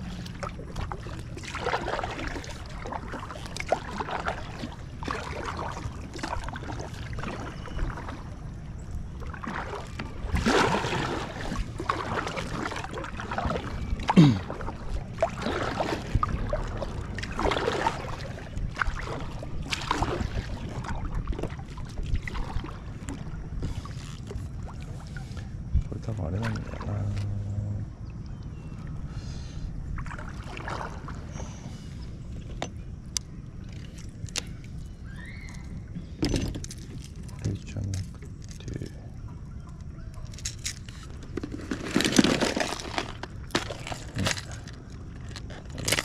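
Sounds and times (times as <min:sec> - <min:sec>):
paddle strokes splashing water: 0:00.0 - 0:27.4, 0:28.3 - 0:46.0
steady low rumble: 0:20.8 - 0:40.4
short falling squeak: 0:35.0 - 0:35.8.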